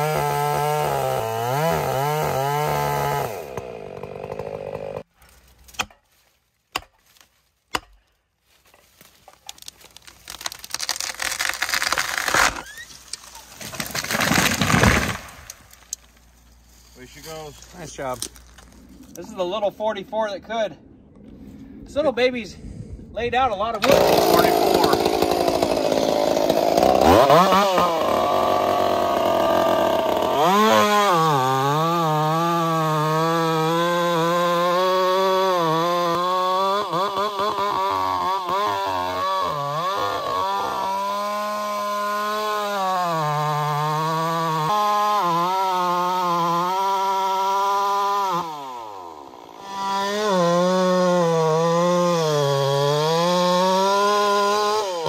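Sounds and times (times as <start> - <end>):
chainsaw cutting wood: 0.0 - 5.1, 9.0 - 16.2, 23.8 - 55.0.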